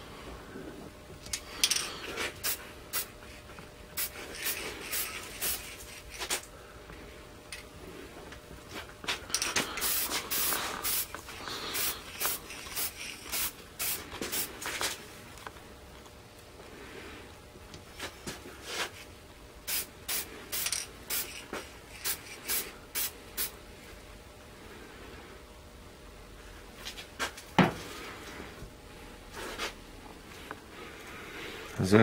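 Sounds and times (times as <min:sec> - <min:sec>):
spray paint can hissing: 0:02.4 - 0:03.1, 0:04.0 - 0:06.4, 0:09.5 - 0:14.9, 0:19.7 - 0:23.5.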